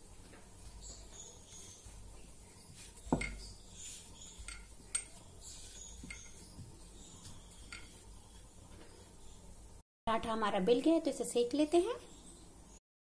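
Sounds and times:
faint rubbing of dough: 0.0 - 9.5.

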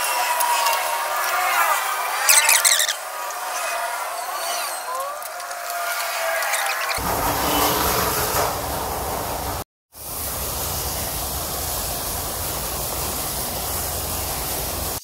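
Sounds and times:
steady rushing hiss: 7.0 - 15.0.

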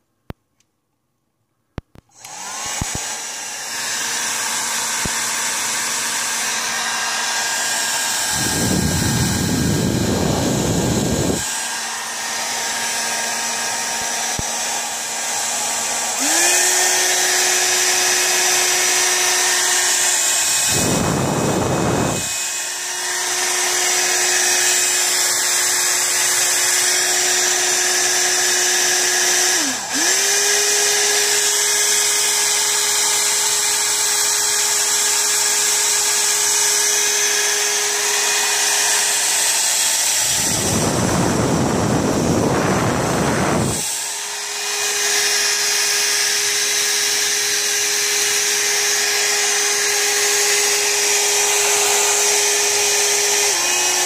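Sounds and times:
hair dryer motor whining: 2.0 - 54.0
air rushing on microphone: 8.3 - 11.4, 40.4 - 43.8.

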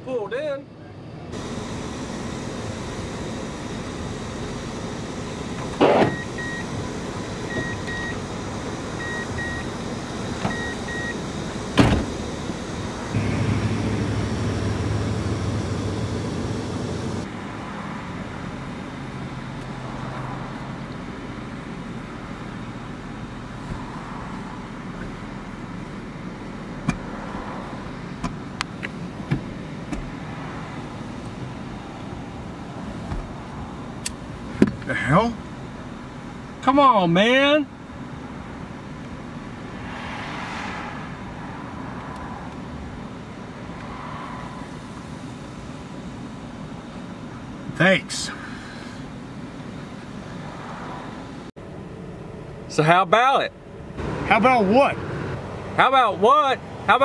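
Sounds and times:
truck cab hum: 0.0 - 39.8, 41.2 - 57.0.

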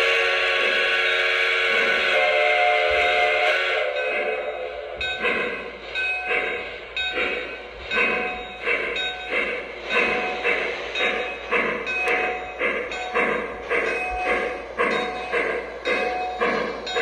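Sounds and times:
steam whistle: 0.0 - 4.5
rhythmic locomotive chuffing: 0.0 - 17.0.

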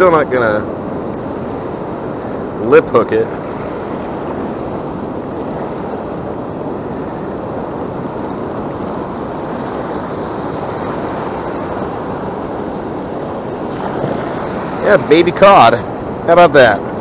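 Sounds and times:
ocean surf breaking: 0.0 - 17.0
wind on microphone: 0.0 - 17.0.

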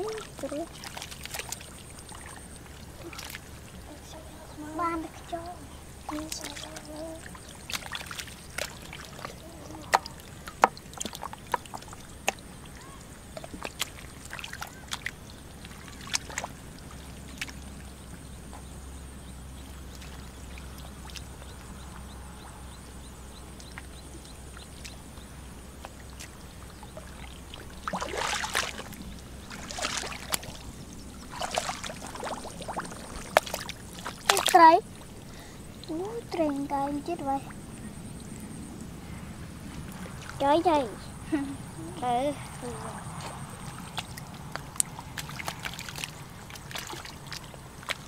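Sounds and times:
loud water splashing: 0.0 - 3.9, 4.8 - 17.8, 26.0 - 37.6, 42.7 - 48.0
wet mud squelches and splashes: 0.0 - 4.0, 6.0 - 17.9, 19.7 - 22.1, 23.6 - 37.7, 42.0 - 48.0.

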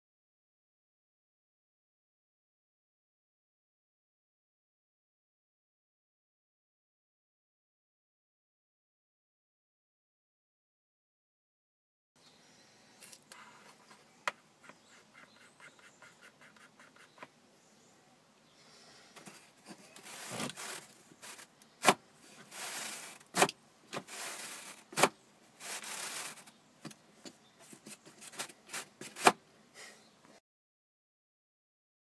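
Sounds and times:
cardboard sliding on cardboard: 19.2 - 26.5.

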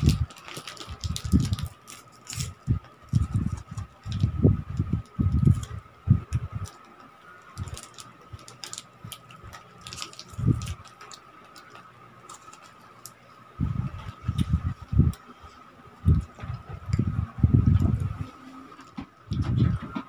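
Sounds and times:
plastic wrappers crinkling: 0.0 - 5.8, 6.5 - 13.2
dull low thumps: 16.0 - 18.2.

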